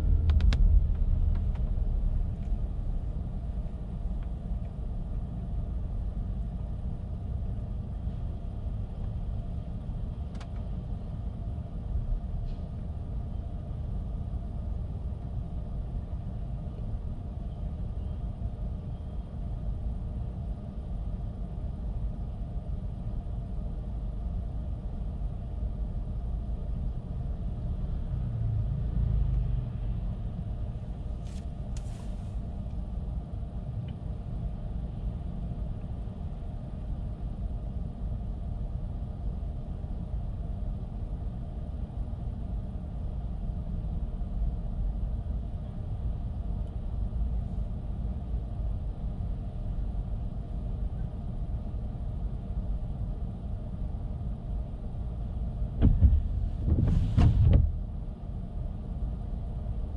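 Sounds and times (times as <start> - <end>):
car tyre and road noise: 0.0 - 59.9.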